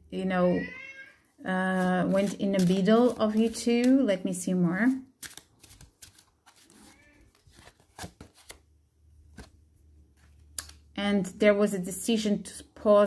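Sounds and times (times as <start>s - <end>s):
cards clicking and tapping: 2.1s - 4.1s, 5.2s - 6.8s.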